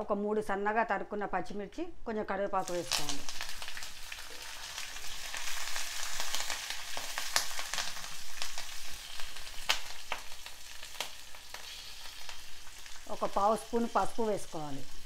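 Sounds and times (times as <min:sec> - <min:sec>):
chillies sizzling in hot oil: 0:02.5 - 0:15.0
sharp crackling pops: 0:02.6 - 0:13.6.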